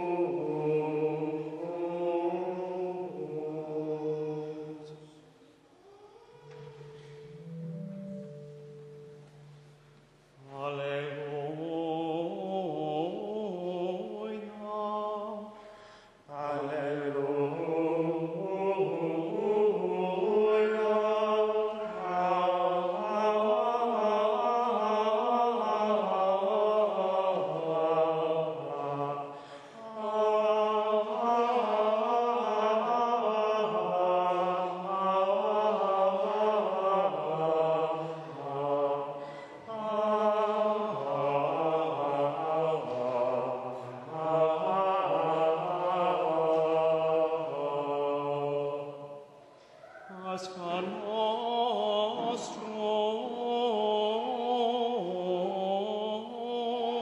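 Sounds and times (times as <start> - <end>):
men singing plainchant: 0.0 - 5.1, 16.3 - 49.1.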